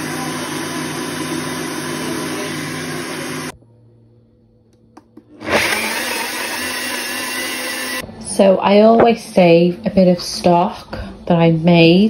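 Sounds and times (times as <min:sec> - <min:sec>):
blender running: 0:00.0 - 0:03.6, 0:05.4 - 0:08.0.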